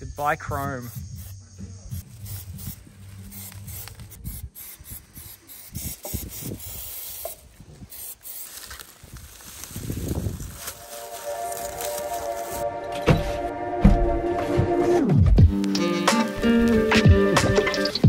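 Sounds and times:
spray paint can hissing: 0:00.8 - 0:10.6.

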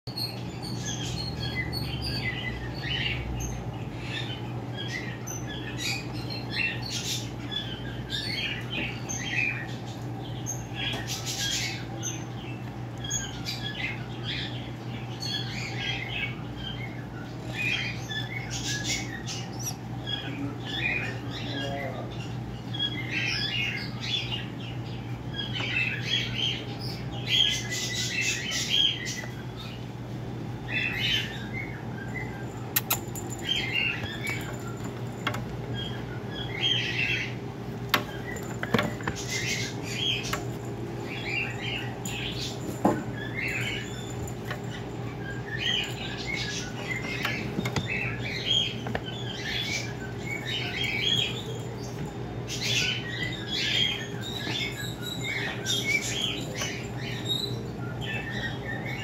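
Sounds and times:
steady low hum: 0:00.1 - 0:59.0.

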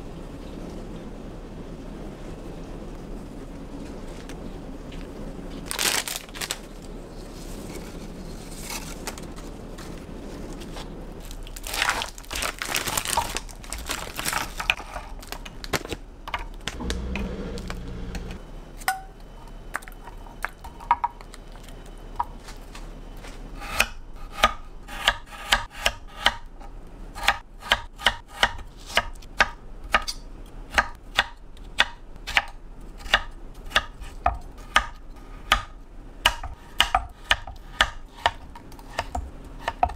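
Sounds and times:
rustling and handling: 0:05.0 - 0:17.0, 0:21.2 - 0:23.5.

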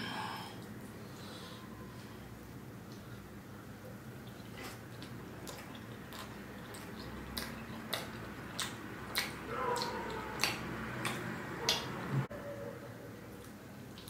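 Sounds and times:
close chewing with mouth clicks: 0:03.9 - 0:12.2, 0:13.3 - 0:14.0.

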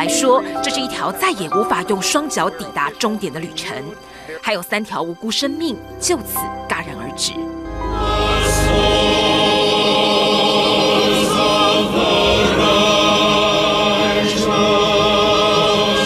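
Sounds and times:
choir singing held notes: 0:07.6 - 0:16.0.

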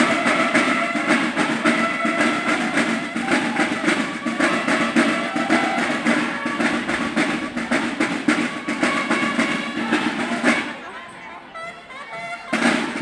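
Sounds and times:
snare drum line playing march: 0:00.0 - 0:13.0.

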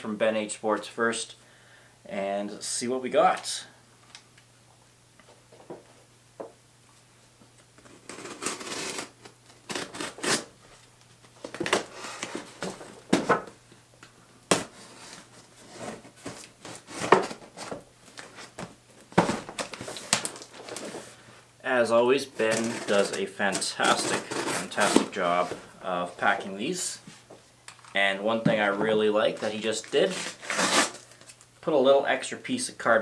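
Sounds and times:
cardboard rustling: 0:07.8 - 0:13.6, 0:14.5 - 0:21.2, 0:22.2 - 0:27.3
box cutter slicing cardboard: 0:08.0 - 0:10.5, 0:22.4 - 0:25.5, 0:30.0 - 0:31.0.

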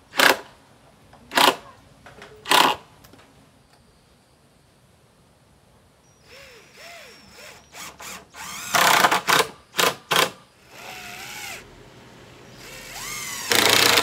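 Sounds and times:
cordless drill driving screws: 0:06.3 - 0:14.0.

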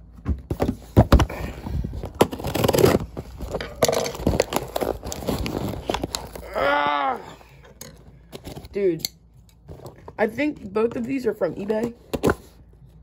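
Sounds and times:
cardboard package handled: 0:00.3 - 0:08.8.

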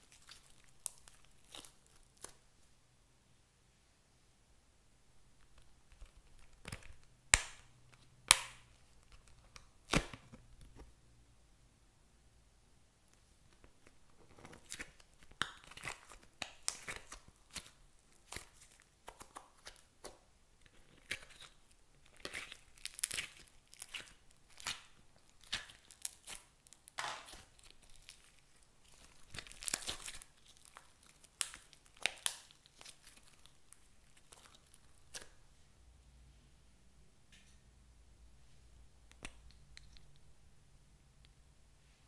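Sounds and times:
slime squishing and crackling: 0:00.0 - 0:02.4, 0:05.4 - 0:10.8, 0:13.5 - 0:35.4.

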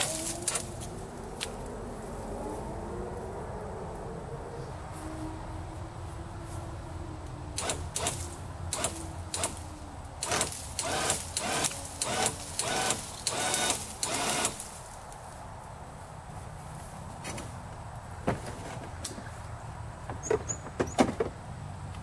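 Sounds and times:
electric winch reeling in cable: 0:07.6 - 0:09.6, 0:10.2 - 0:14.8.

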